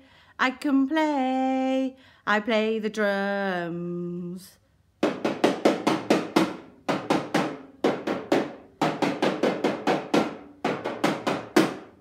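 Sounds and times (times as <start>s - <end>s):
toy drum beaten with stick: 5.0s - 12.0s.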